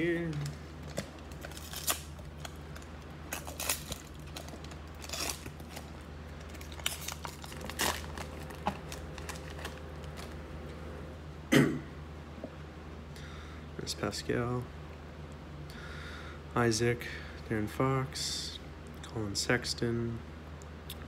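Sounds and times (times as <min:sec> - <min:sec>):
plastic wrapper crinkling and tearing: 0:00.2 - 0:10.4.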